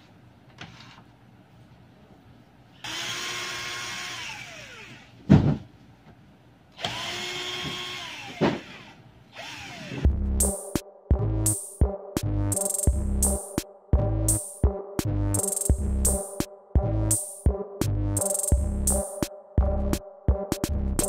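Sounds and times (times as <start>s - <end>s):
cordless drill motor: 2.8s - 5.2s, 6.8s - 10.1s.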